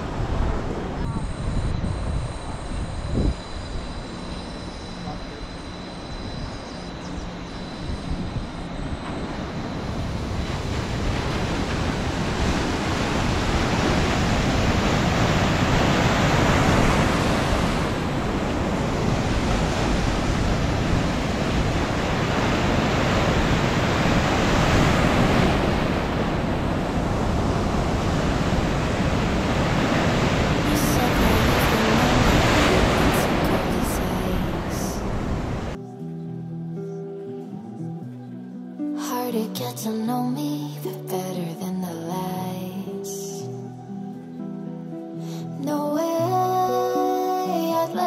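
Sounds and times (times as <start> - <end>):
waves breaking: 0.0 - 1.2, 8.2 - 35.8
wind rumbling on microphone: 0.0 - 35.8.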